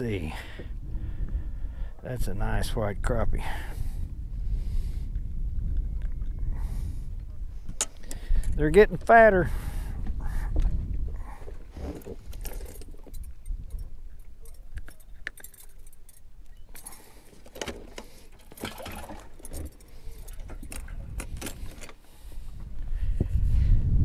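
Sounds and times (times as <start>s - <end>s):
wind rumble on microphone: 0.0s - 17.2s, 18.6s - 24.0s
small clicks and clinks: 12.3s - 18.7s.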